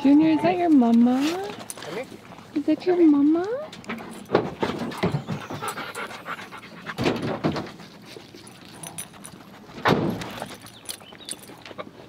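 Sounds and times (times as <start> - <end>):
dogs panting: 2.6 - 12.0.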